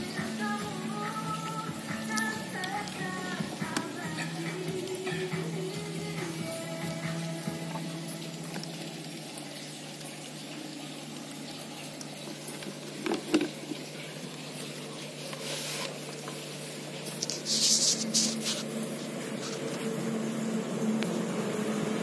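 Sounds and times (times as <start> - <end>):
mist maker bubbling hiss: 0.0 - 22.0.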